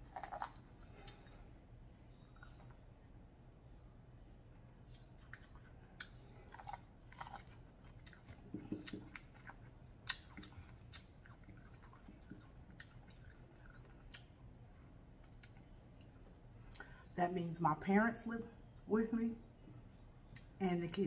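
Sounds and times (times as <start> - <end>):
person chewing corn: 0.0 - 1.4, 4.9 - 14.4
lip smacks: 8.0 - 14.3.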